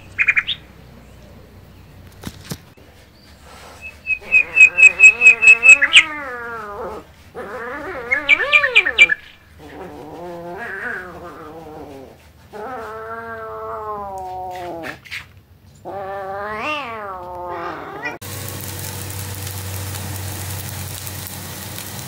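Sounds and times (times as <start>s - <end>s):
bird chirping: 0.0s - 2.2s, 2.8s - 6.4s, 7.9s - 10.0s
cat meowing: 4.3s - 9.2s, 15.9s - 18.2s.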